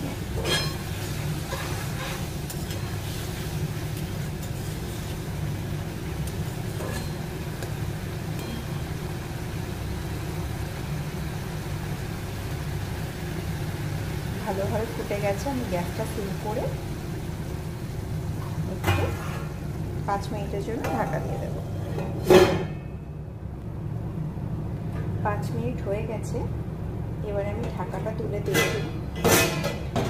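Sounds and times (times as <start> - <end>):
gravy boiling in a pan: 0.0 - 23.0
gas stove low rumble: 0.0 - 30.0
spatula scraping pan: 0.2 - 3.5, 6.7 - 7.2.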